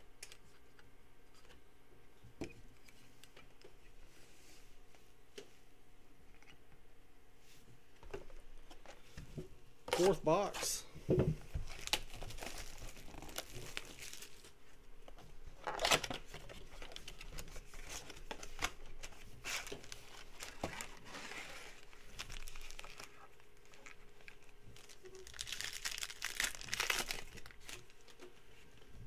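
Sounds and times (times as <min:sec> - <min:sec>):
plastic shrink-wrap crinkling and tearing: 0:11.6 - 0:14.6, 0:15.6 - 0:28.2
foil pack tearing open: 0:11.7 - 0:14.5, 0:15.6 - 0:28.2.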